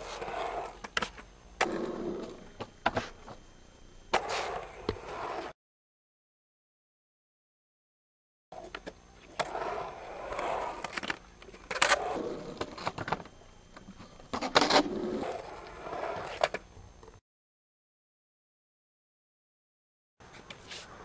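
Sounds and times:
skateboard grinding on coping: 0.0s - 2.4s, 4.2s - 5.6s, 9.3s - 12.9s, 14.5s - 16.6s
skateboard wheels rolling on concrete: 0.0s - 3.4s, 4.1s - 5.6s, 8.6s - 17.2s.

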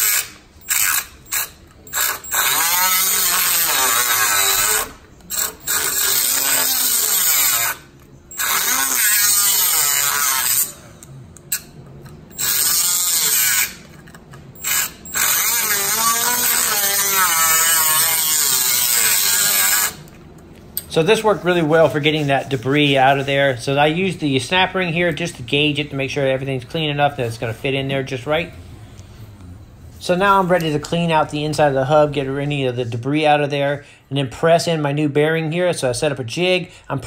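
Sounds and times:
die grinder grinding metal: 0.0s - 11.7s, 12.3s - 20.2s.

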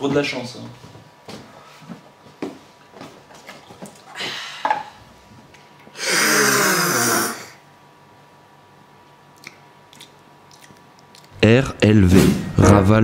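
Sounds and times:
person's rough vocal noise: 6.0s - 7.6s.

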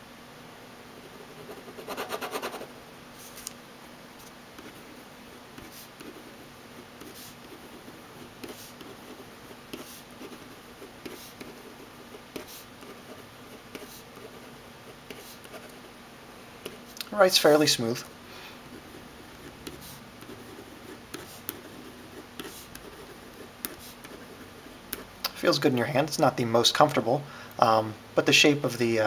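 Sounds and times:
pen scratching on paper: 1.0s - 2.7s, 4.6s - 4.9s, 5.6s - 15.9s, 18.7s - 25.1s.

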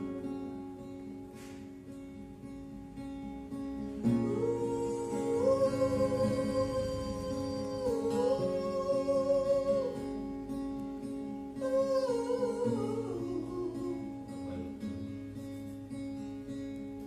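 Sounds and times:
acoustic guitar: 0.0s - 17.0s
man singing wordless vocalise: 4.3s - 10.0s.

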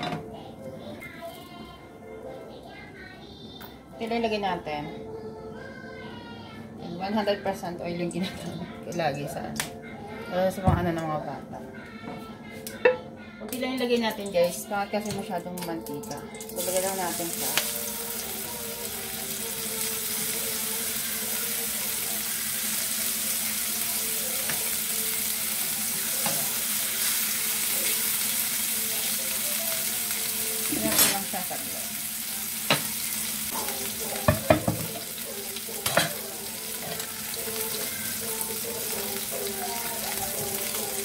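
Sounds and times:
chicken sizzling in a pan: 15.9s - 41.0s.

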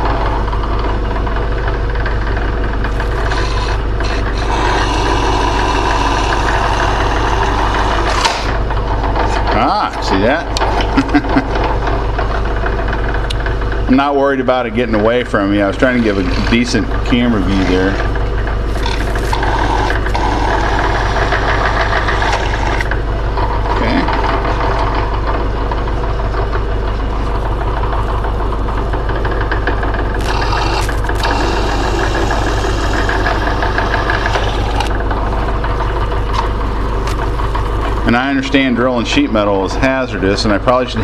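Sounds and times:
drill press motor running: 0.0s - 41.0s
drill bit cutting sheet metal: 2.9s - 8.6s, 14.9s - 23.0s, 30.2s - 35.0s.

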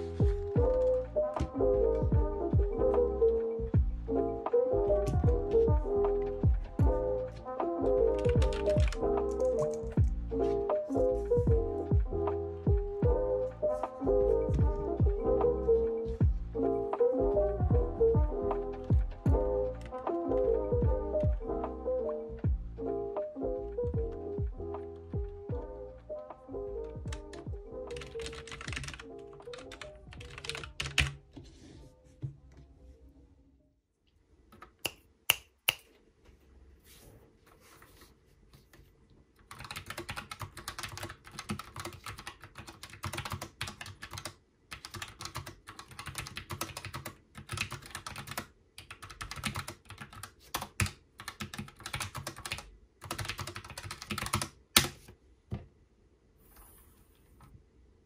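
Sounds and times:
background music: 0.0s - 33.4s
typing on a keyboard: 8.1s - 10.1s, 27.1s - 31.2s, 39.4s - 55.0s.

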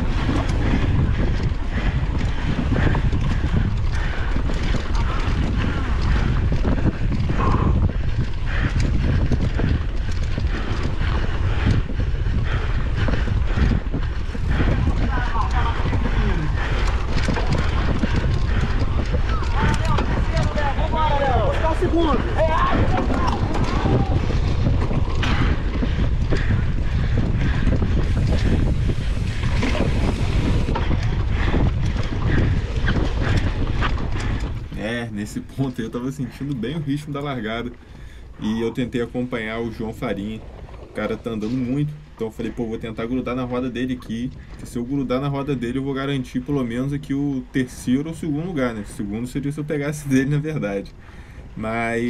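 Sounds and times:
bike frame and chain rattling: 0.0s - 37.0s
wind buffeting microphone: 0.0s - 52.0s.

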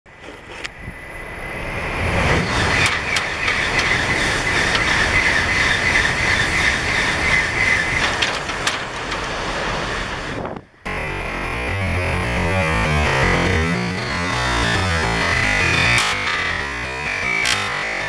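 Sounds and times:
train passing with rushing roar: 0.1s - 18.0s
sharp clicks: 15.4s - 17.8s.

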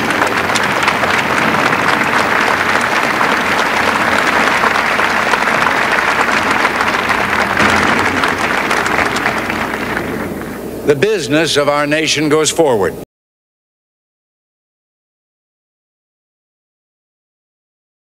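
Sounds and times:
crowd applauding: 0.0s - 10.6s.

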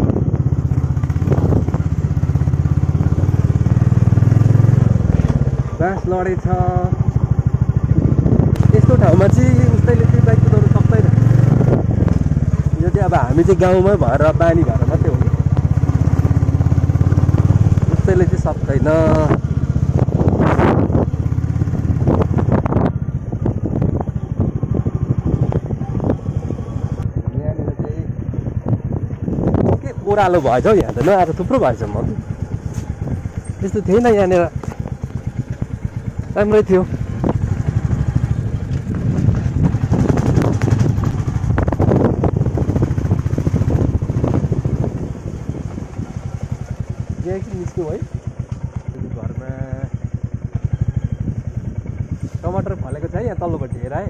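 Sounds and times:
motorcycle engine running: 0.0s - 54.0s
knocks and rattles over bumps: 34.4s - 44.5s.

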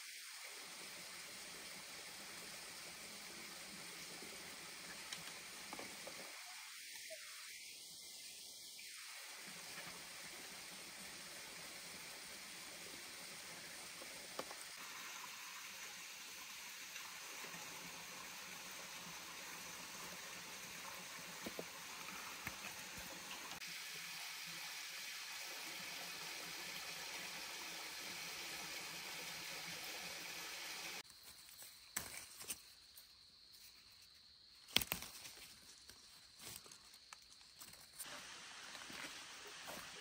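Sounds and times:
stream water running: 0.0s - 31.1s, 34.7s - 40.0s
leaves snapping: 34.6s - 37.8s.

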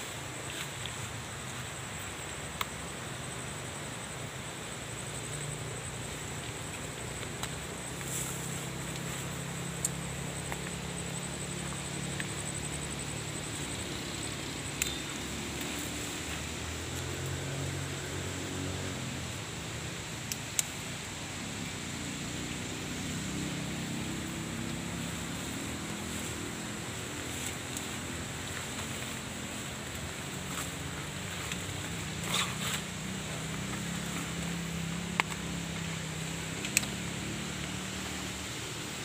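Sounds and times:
high insect-like drone: 0.0s - 39.0s
faint clicks and rustles: 24.6s - 37.0s.

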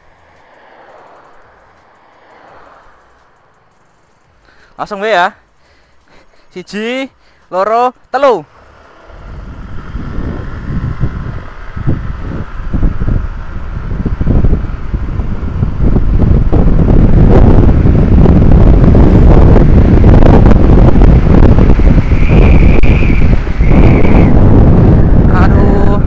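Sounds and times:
scooter accelerating: 0.0s - 4.5s, 8.0s - 26.0s
wind buffeting microphone: 8.5s - 26.0s.

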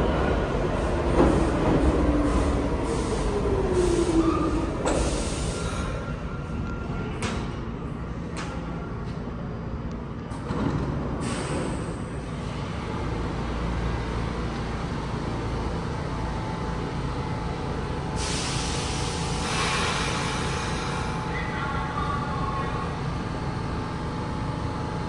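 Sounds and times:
train low rumble and hum: 0.0s - 25.0s
air hiss: 18.2s - 21.0s.

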